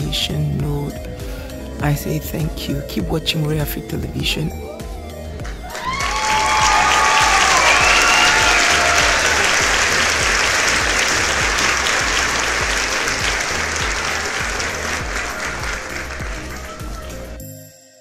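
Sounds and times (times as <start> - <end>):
crowd applauding: 5.4 - 17.4.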